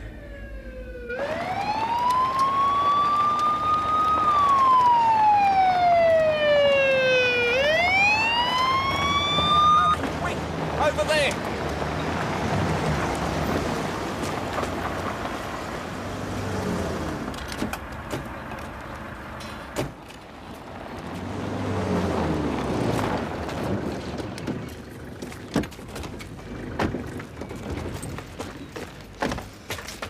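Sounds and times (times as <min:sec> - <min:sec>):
motor vehicles driving: 0:00.0 - 0:29.9.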